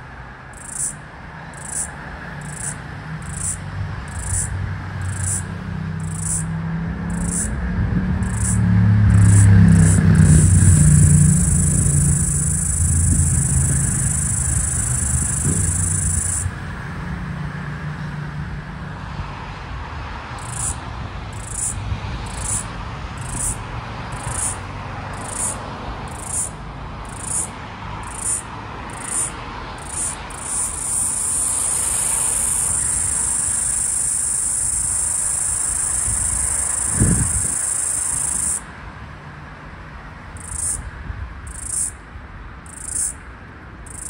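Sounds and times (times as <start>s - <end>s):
cicada short high pulses: 0.5s - 6.5s, 7.1s - 7.6s, 8.2s - 16.6s, 20.4s - 38.6s, 40.4s - 40.8s, 41.5s - 42.0s, 42.7s - 43.2s
cicada buzzing: 0.5s - 18.9s, 20.3s - 38.7s, 40.4s - 40.9s, 41.5s - 42.0s, 42.6s - 43.2s.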